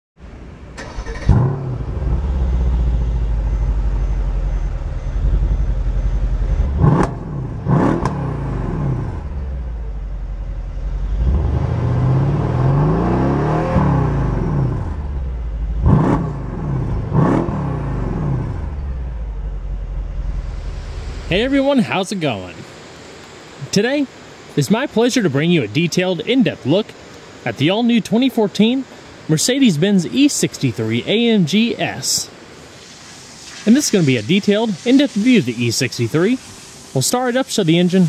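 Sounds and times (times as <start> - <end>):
car engine starting and revving: 0.7 - 21.8.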